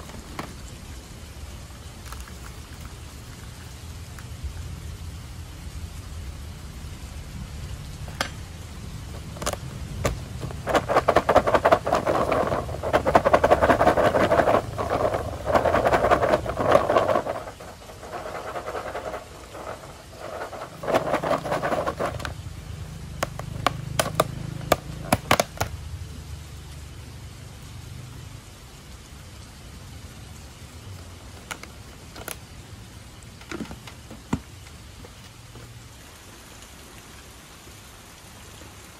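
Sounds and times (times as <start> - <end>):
rain hissing: 0.0 - 38.9
popcorn rattling in plastic tub: 9.2 - 22.4, 23.2 - 25.7.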